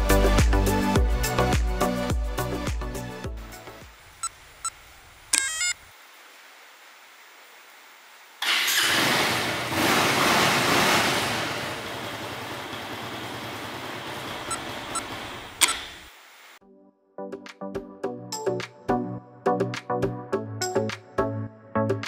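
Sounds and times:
motorcycle engine starting and idling: 8.4 - 16.1.

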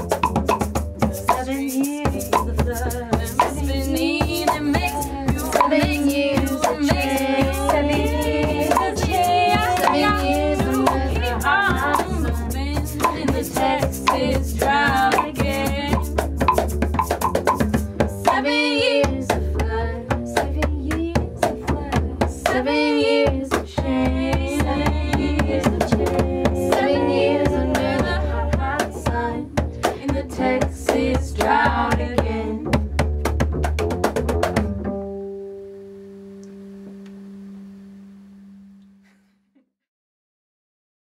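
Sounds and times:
hand percussion: 0.0 - 18.5, 23.5 - 34.9
upright bass: 0.0 - 39.2
women singing in harmony: 1.2 - 16.2, 18.2 - 32.6.

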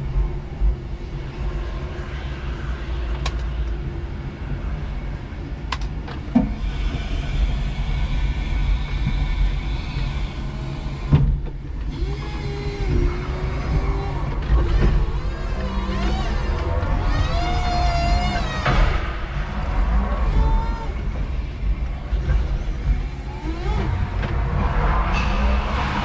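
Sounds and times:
hydraulic pump whine: 6.0 - 26.0
electric forklift motor hum: 6.2 - 26.0.

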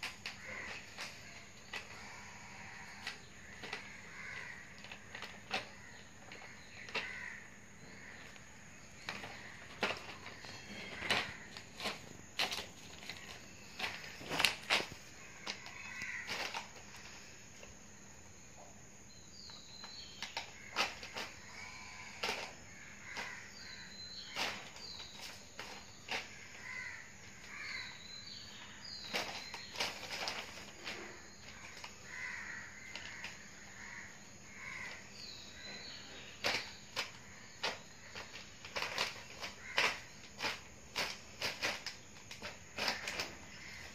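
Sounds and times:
faint bird calls: 0.0 - 43.9
plastic bag crinkling: 36.4 - 43.9.

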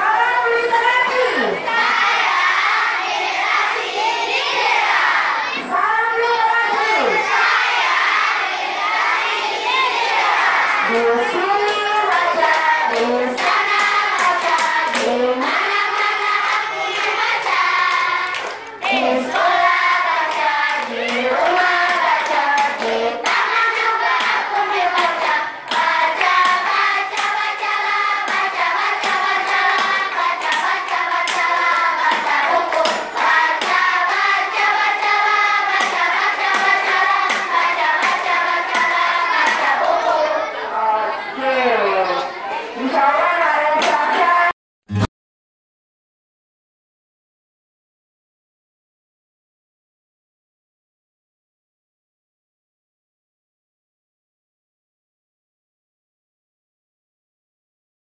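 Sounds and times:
children singing in unison: 1.0 - 41.4
hand claps and slaps: 10.9 - 40.0.

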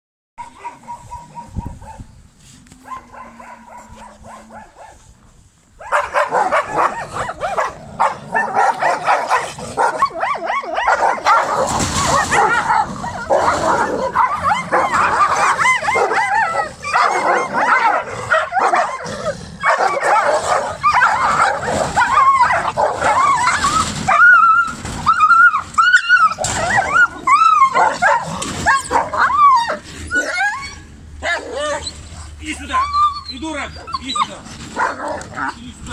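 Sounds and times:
dogs barking and yelping: 0.4 - 2.2, 2.8 - 5.1, 5.8 - 35.6
dog whimpering: 22.0 - 32.1, 32.7 - 34.5.

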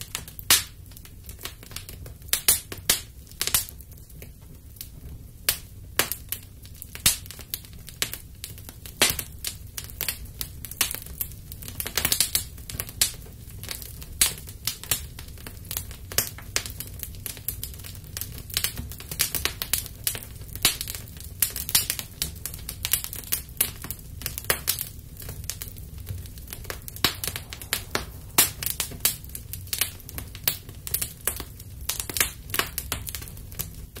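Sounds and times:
fire crackling and popping: 0.0 - 34.0
steady low rumble: 25.0 - 32.0.

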